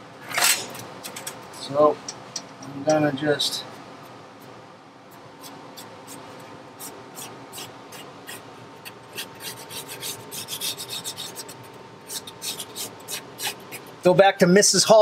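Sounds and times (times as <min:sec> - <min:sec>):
pencil scratching on paper: 0:06.8 - 0:14.0.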